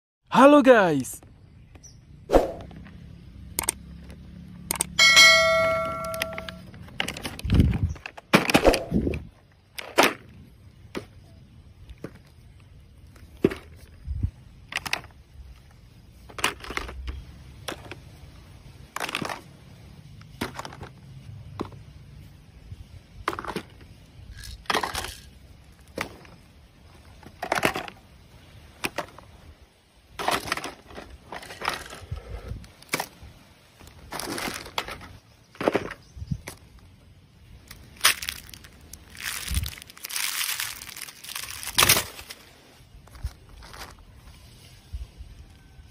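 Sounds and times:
plastic toys clacking: 0:04.7 - 0:11.1, 0:14.6 - 0:21.9, 0:23.1 - 0:26.4, 0:27.0 - 0:29.4, 0:30.1 - 0:33.2, 0:33.8 - 0:36.7, 0:37.6 - 0:42.4
plastic packaging crinkling: 0:37.6 - 0:42.4.

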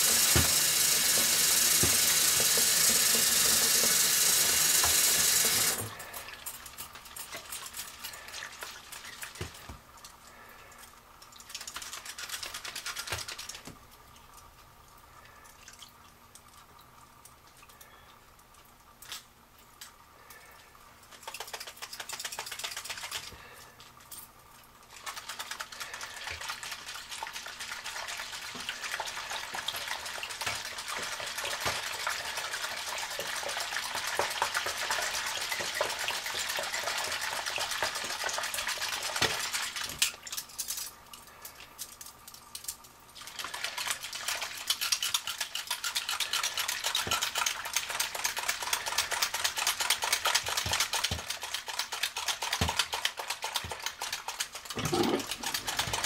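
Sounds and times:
scrubbing and water sloshing: 0:43.2 - 0:56.0.

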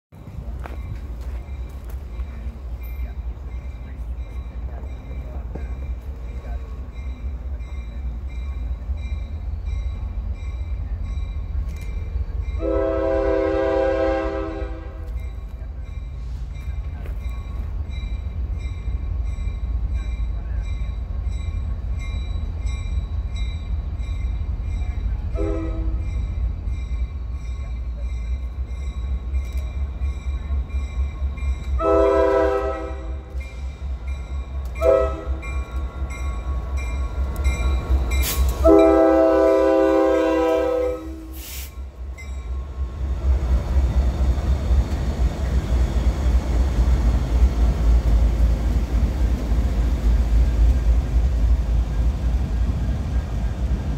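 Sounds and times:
locomotive air horn blasts: 0:12.6 - 0:15.1, 0:25.3 - 0:26.1, 0:31.8 - 0:33.3, 0:34.8 - 0:35.5, 0:38.3 - 0:41.7.

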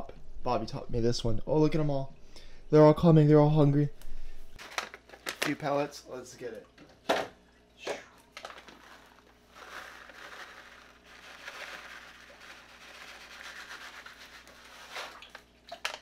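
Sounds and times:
fish food pellets rustling: 0:04.6 - 0:05.9, 0:08.2 - 0:16.0.

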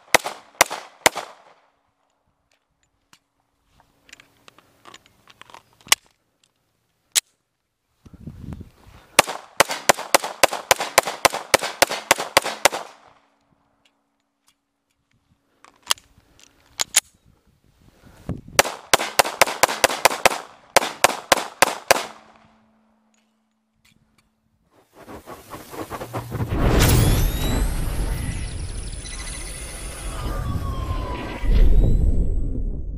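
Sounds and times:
pistol firing rapidly: 0:00.1 - 0:01.3, 0:09.2 - 0:12.9, 0:18.6 - 0:22.2.

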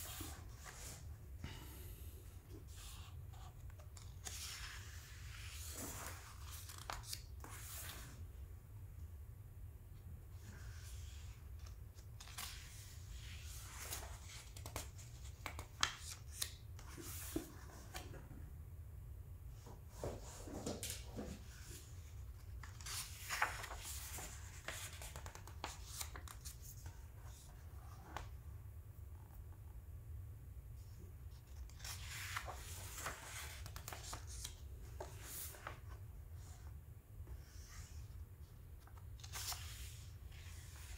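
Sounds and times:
book pages rustling: 0:02.6 - 0:08.1, 0:20.0 - 0:28.4, 0:31.3 - 0:36.7, 0:38.7 - 0:40.9.

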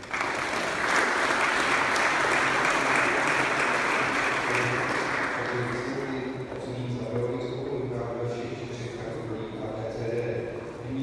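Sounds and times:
audience clapping: 0:00.0 - 0:06.2.

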